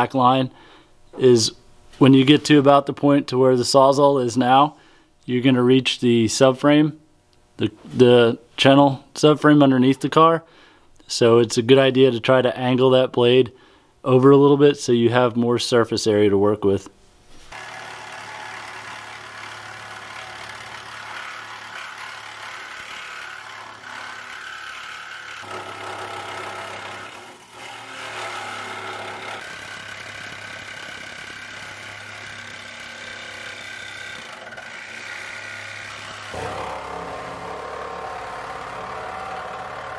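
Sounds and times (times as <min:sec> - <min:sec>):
reciprocating saw cutting sheet steel: 0:17.5 - 0:39.9.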